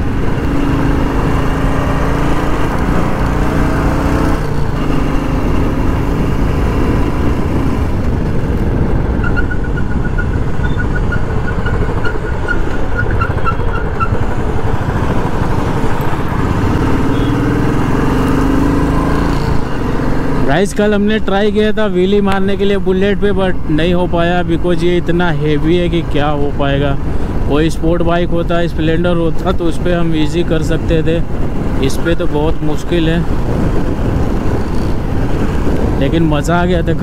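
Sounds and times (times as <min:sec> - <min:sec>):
motorcycle engine running: 0:00.0 - 0:20.5
traffic noise: 0:00.0 - 0:37.0
wind: 0:00.0 - 0:37.0.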